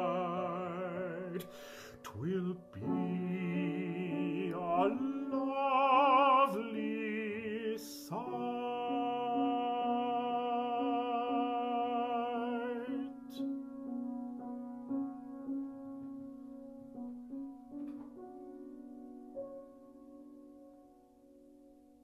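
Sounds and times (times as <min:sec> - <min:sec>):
baritone singing: 0:00.0 - 0:13.4
piano accompaniment: 0:00.0 - 0:22.0.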